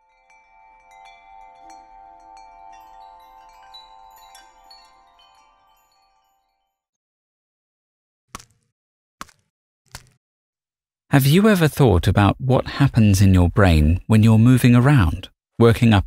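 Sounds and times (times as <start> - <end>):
held bell-like tones: 0.0 - 6.8
high tinkling strikes: 0.0 - 6.8.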